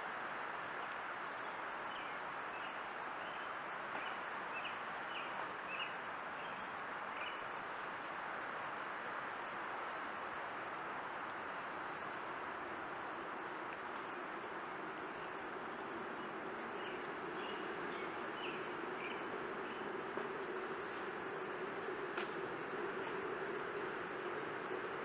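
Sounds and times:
faint high electronic whine: 0:00.0 - 0:25.0
microphone hiss: 0:00.0 - 0:25.0.

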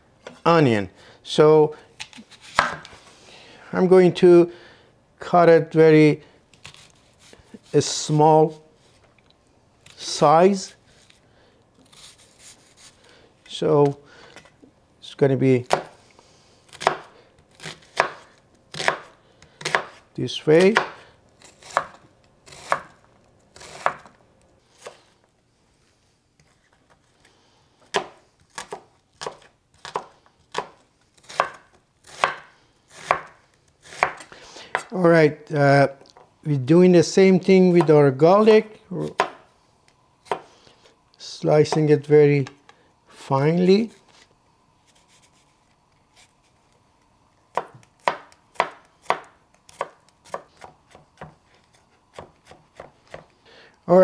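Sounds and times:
knife chopping on wooden board: 0:02.5 - 0:02.9, 0:17.9 - 0:20.0, 0:27.9 - 0:33.3, 0:33.9 - 0:34.9, 0:47.5 - 0:51.4, 0:52.1 - 0:53.3.

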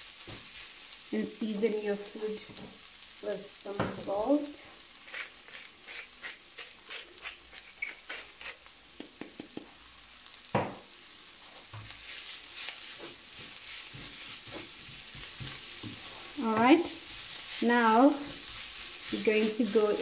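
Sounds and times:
food sizzling in a pan: 0:00.0 - 0:20.0
wooden spoon scraping a pan: 0:05.0 - 0:08.7, 0:11.4 - 0:20.0.

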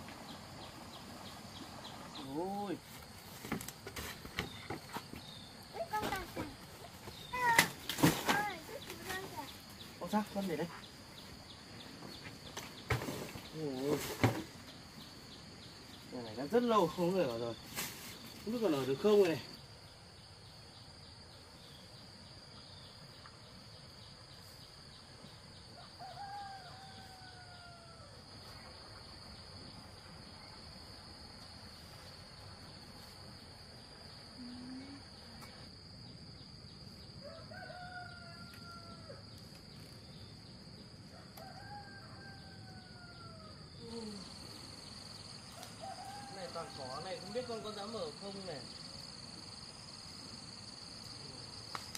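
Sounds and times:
high insect drone: 0:00.0 - 0:51.9
rooster crowing: 0:25.8 - 0:28.2, 0:37.2 - 0:39.3, 0:41.1 - 0:43.8, 0:45.5 - 0:47.9.

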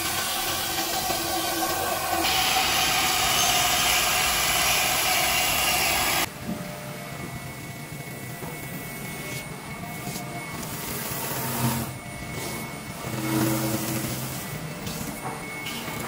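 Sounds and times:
router spindle cutting foam: 0:00.0 - 0:06.3, 0:10.1 - 0:14.8
faint high whine: 0:00.0 - 0:16.0.

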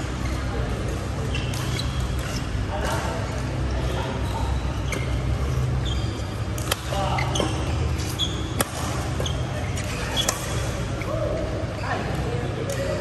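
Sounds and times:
shoes squeaking on court floor: 0:00.0 - 0:12.9
low hum of hall: 0:00.0 - 0:13.0
rackets striking shuttlecock: 0:06.5 - 0:07.5, 0:08.5 - 0:09.3.

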